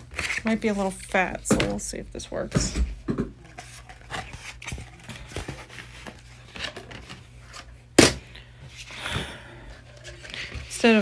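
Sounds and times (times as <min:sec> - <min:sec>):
vinyl sheet rustling: 0:00.0 - 0:01.4, 0:03.4 - 0:07.9, 0:09.9 - 0:11.0.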